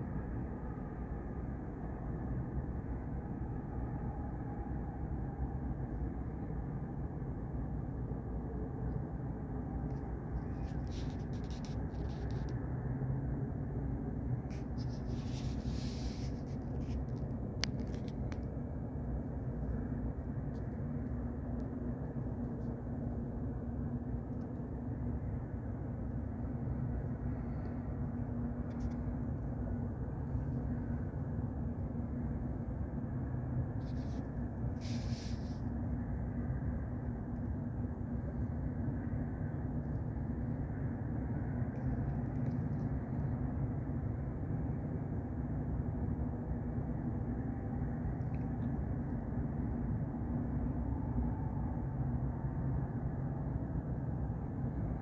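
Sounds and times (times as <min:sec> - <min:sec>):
low rumble with droning hum: 0:00.0 - 0:55.0
brief hissing: 0:34.8 - 0:35.6.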